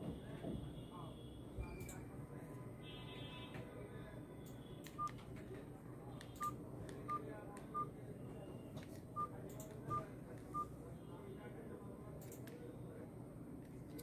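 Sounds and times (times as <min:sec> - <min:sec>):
phone keypad beeps: 0:06.4 - 0:07.9.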